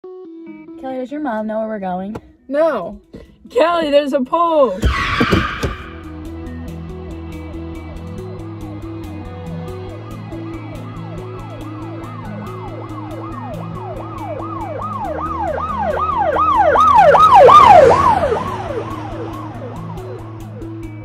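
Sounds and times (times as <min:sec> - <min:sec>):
background music with steady pulse: 0:00.0 - 0:21.0
emergency vehicle siren: 0:04.8 - 0:06.2, 0:09.6 - 0:20.8.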